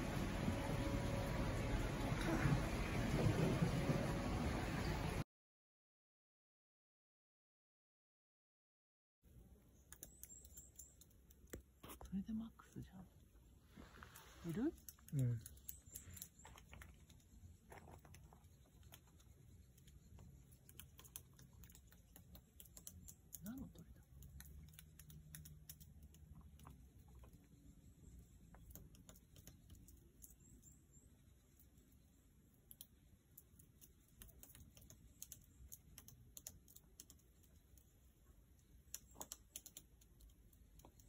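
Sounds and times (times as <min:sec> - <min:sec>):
faint irregular clicks: 0:09.8 - 0:12.1, 0:14.0 - 0:30.8, 0:31.5 - 0:41.0.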